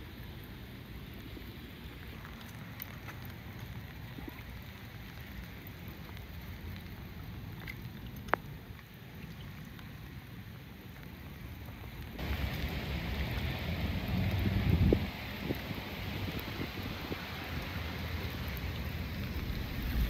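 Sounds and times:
light rain hiss: 0:00.0 - 0:20.0
raindrop ticks: 0:00.0 - 0:20.0
wind rumble on microphone: 0:12.2 - 0:20.0.

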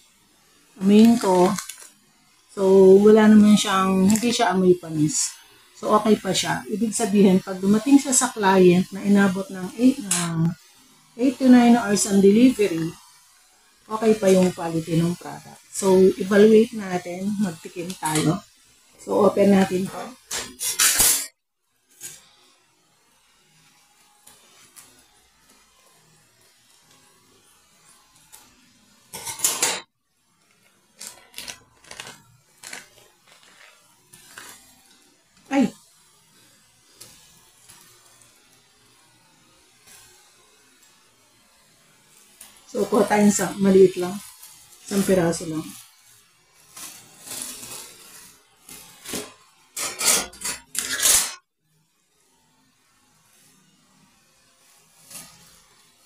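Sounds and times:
plastic wrapping crinkling: 0:01.0 - 0:01.9, 0:30.5 - 0:34.6.

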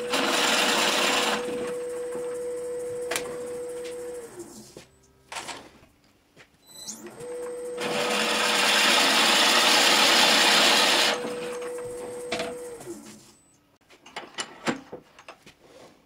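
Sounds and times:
drill bit cutting wood: 0:00.0 - 0:01.7, 0:07.8 - 0:11.9
lathe motor whining: 0:00.0 - 0:04.8, 0:07.0 - 0:13.2.

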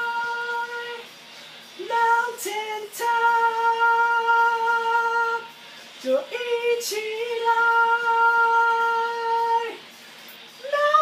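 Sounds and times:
hissy breaths: 0:01.1 - 0:01.8, 0:05.5 - 0:06.0, 0:09.8 - 0:10.6
young man singing held notes: 0:01.8 - 0:09.8.

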